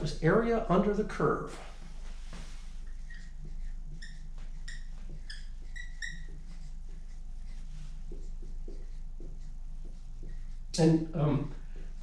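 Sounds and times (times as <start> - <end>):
low room hum: 0.0 - 12.0
marker squeaking on board: 2.8 - 11.9.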